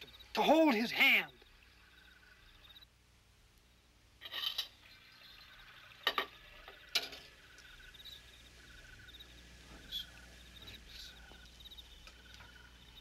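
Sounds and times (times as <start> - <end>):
crickets chirping: 0.0 - 2.9, 4.8 - 13.0.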